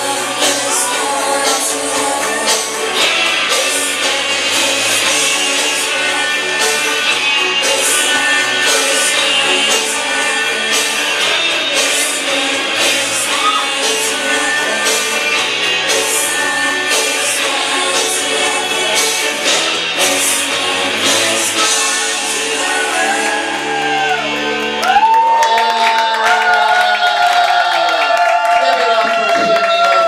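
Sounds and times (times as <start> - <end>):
rock song with vocals: 0.0 - 30.0
crowd whooping: 13.2 - 13.9, 21.6 - 30.0.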